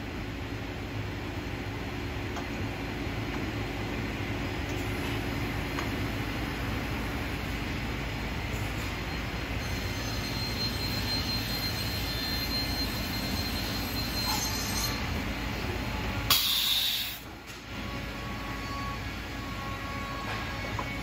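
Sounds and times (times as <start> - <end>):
cnc router machine noise: 9.5 - 16.1, 17.7 - 21.0
loud burst of hiss: 16.3 - 17.3.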